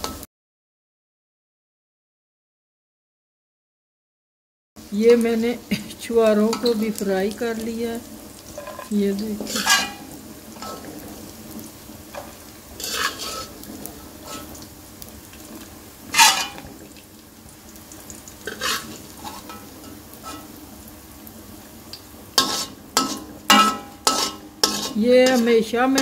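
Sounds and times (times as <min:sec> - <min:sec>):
faint sizzle: 0:00.0 - 0:00.3, 0:04.8 - 0:26.0
metal spoon scraping and clinking: 0:08.6 - 0:10.9, 0:12.1 - 0:13.6, 0:14.3 - 0:14.6, 0:16.2 - 0:16.7, 0:18.5 - 0:20.5, 0:22.4 - 0:26.0.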